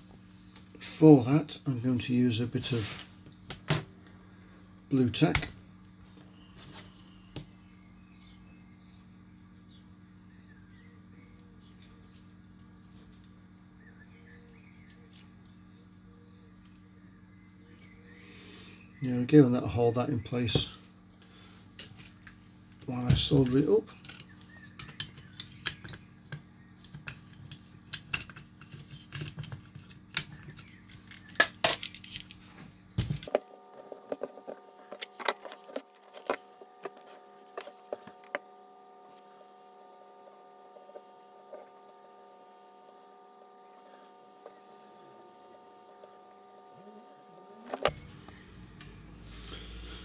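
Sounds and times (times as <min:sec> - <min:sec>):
steady electrical hum: 0:00.0 - 0:50.0
higher steady tones: 0:33.3 - 0:48.9.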